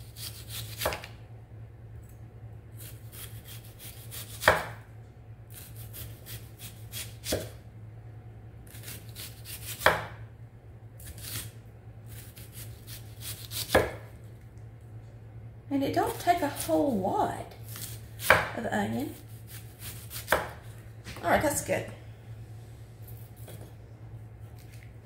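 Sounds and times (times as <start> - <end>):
knife crunching through onion: 0.0 - 1.1, 2.8 - 4.8, 8.7 - 9.9, 11.0 - 14.0, 17.6 - 18.5, 19.1 - 20.6
low steady hum: 0.0 - 25.0.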